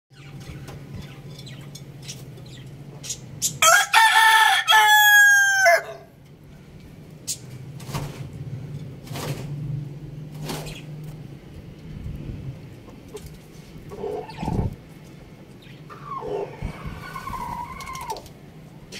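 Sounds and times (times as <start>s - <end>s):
rooster crowing: 3.6s - 6.1s.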